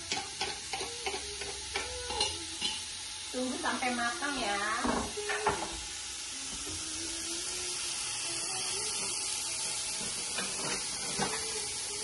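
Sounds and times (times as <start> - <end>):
onion sizzling in oil: 0.0 - 12.0.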